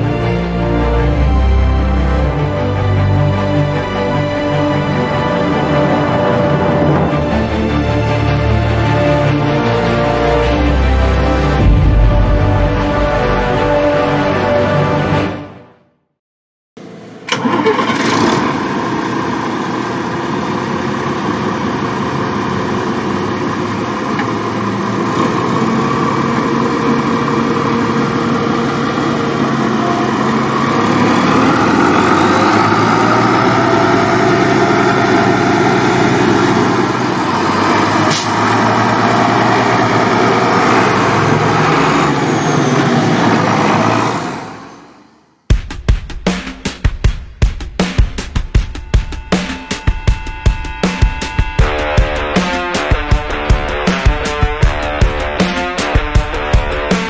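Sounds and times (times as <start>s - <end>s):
tractor diesel engine running: 0.0s - 13.3s, 16.8s - 45.2s.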